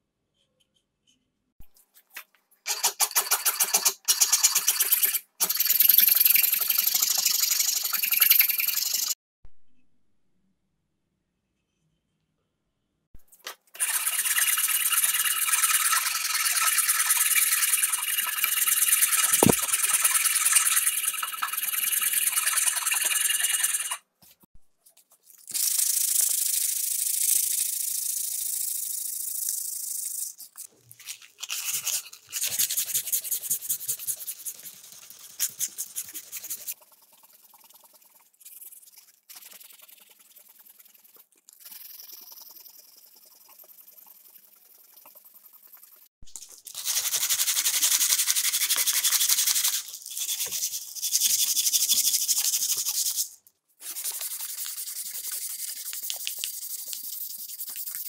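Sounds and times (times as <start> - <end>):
sandpaper rubbing wood: 13.8 - 24.0, 31.4 - 36.8, 46.8 - 58.0.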